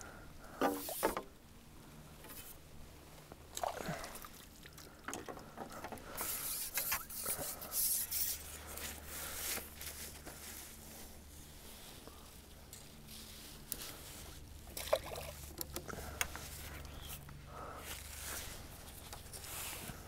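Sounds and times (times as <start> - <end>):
water splashing and trickling: 3.5 - 7.2, 14.6 - 16.0.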